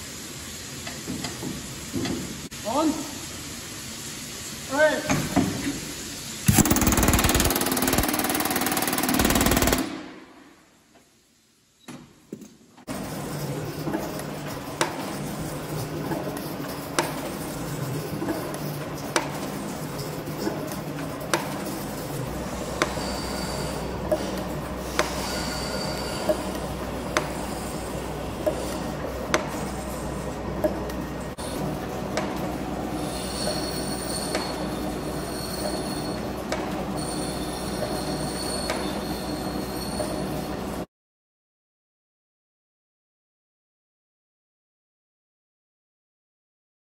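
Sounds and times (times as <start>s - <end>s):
sharp machine clack: 6.5s - 10.3s
metal cutting squeal: 22.4s - 28.9s, 32.9s - 40.7s.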